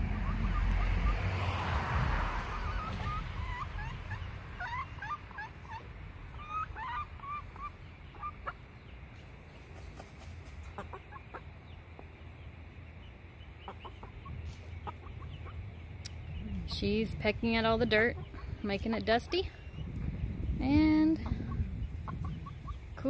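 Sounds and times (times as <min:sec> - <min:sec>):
low steady background rumble: 0:00.0 - 0:23.0
chickens clucking softly: 0:02.4 - 0:16.8, 0:21.0 - 0:23.0.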